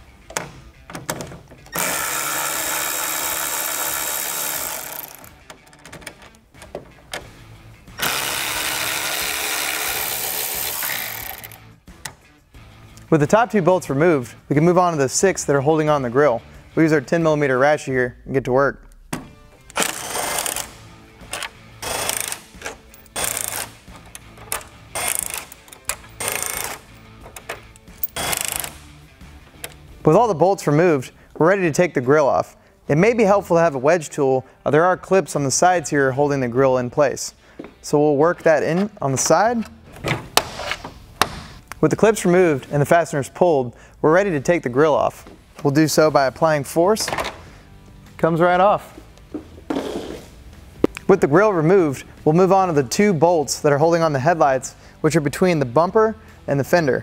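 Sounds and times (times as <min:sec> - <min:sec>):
electric ratchet motor whirring: 0:01.8 - 0:05.3, 0:08.0 - 0:11.6, 0:28.2 - 0:28.8.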